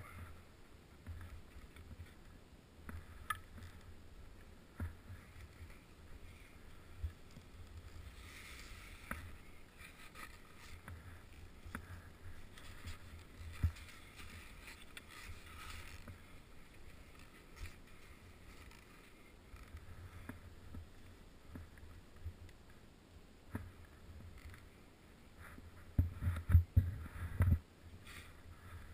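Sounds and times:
skis swishing through powder snow: 5.0s - 19.4s.

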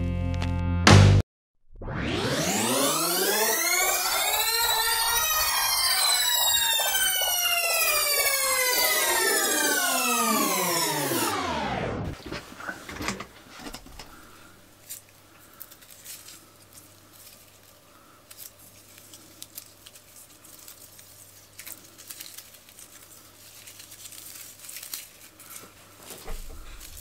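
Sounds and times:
cassette tape rustling and crinkling: 12.1s - 27.0s.

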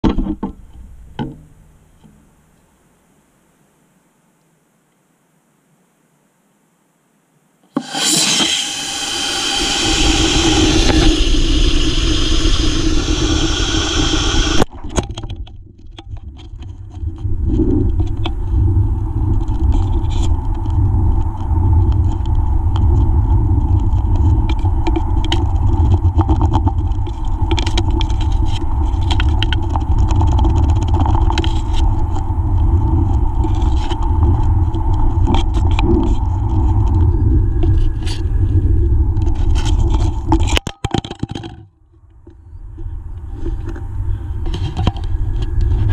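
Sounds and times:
rocket hissing rush with whistling: 7.7s - 14.7s
wind rumble on microphone: 8.0s - 40.6s, 41.2s - 45.9s.

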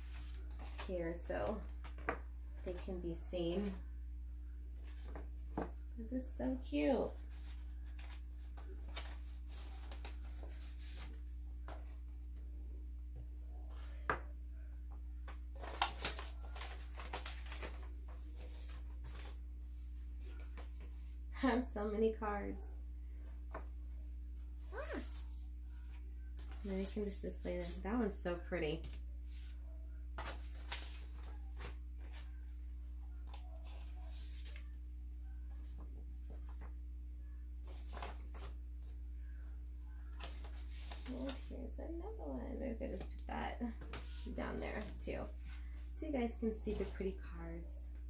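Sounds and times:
low electrical hum: 0.0s - 48.0s
paper cards rustling and tapping: 1.7s - 2.8s, 15.2s - 19.4s.

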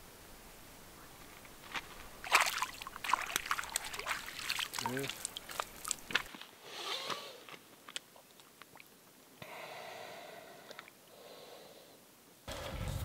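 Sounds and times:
hands splashing in shallow water: 2.2s - 6.4s.

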